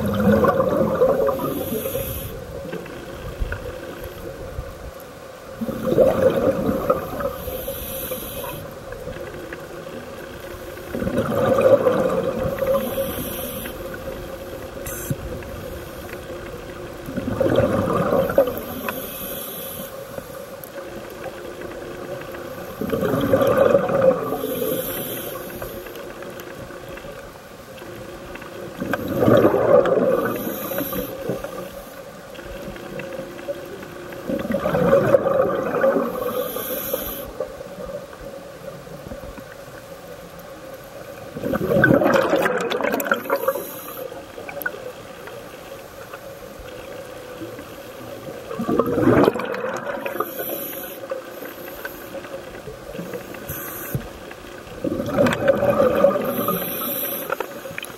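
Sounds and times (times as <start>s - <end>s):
exhaled bubbles rushing: 0.0s - 4.6s, 5.5s - 7.6s, 8.9s - 18.9s, 21.0s - 24.8s, 28.3s - 31.7s, 32.8s - 36.6s, 41.2s - 43.7s, 47.4s - 51.3s, 52.2s - 57.9s
regulator inhale hiss: 1.3s - 2.7s, 7.0s - 8.8s, 12.5s - 16.4s, 18.4s - 20.6s, 24.3s - 26.3s, 30.2s - 32.1s, 36.0s - 37.5s, 43.3s - 44.2s, 50.1s - 52.4s, 53.0s - 54.3s, 56.2s - 57.9s.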